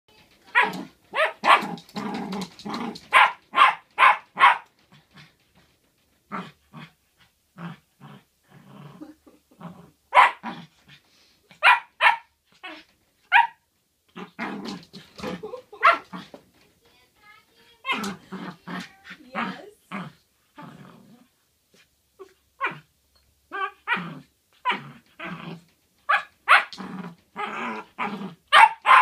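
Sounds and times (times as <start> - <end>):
puppy barking: 0.5 - 1.7, 3.1 - 4.7, 10.1 - 10.4, 11.6 - 12.3, 13.3 - 13.6, 15.8 - 16.1, 26.1 - 26.8, 28.5 - 29.0
puppy growling: 0.5 - 3.5, 6.3 - 11.1, 14.1 - 16.4, 17.8 - 21.4, 22.2 - 22.9, 23.5 - 29.0.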